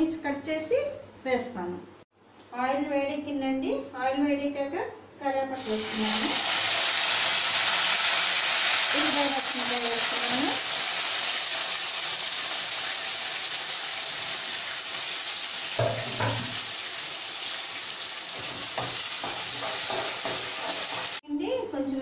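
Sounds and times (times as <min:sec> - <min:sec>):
onions sizzling in hot oil: 0:05.6 - 0:21.2
spoon knocking against pan: 0:15.8 - 0:16.6, 0:18.4 - 0:21.1.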